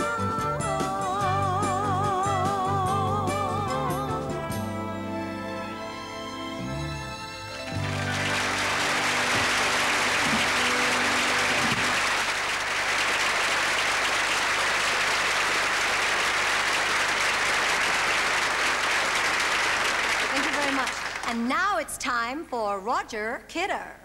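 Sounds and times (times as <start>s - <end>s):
song accompaniment music: 0.0s - 12.1s
studio audience applauding: 7.6s - 21.5s.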